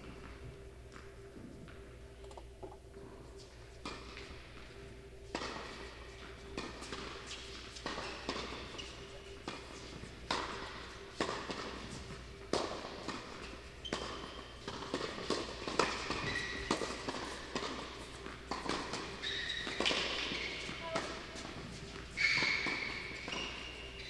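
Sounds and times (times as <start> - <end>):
tennis ball bouncing on court: 5.3 - 5.8, 6.6 - 23.8
rackets striking tennis ball: 5.3 - 24.0.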